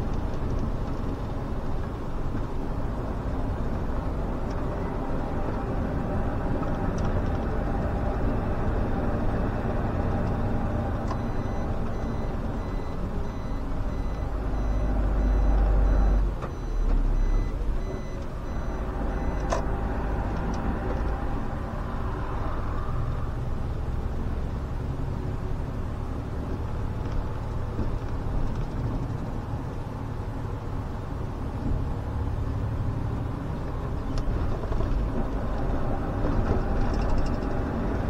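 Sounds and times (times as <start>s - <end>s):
bus diesel engine running: 0.0s - 38.0s
high electronic beep: 11.2s - 19.5s.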